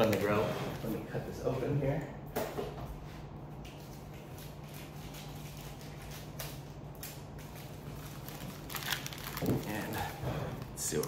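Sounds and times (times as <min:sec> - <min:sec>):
seed packet handling: 0:07.5 - 0:10.1.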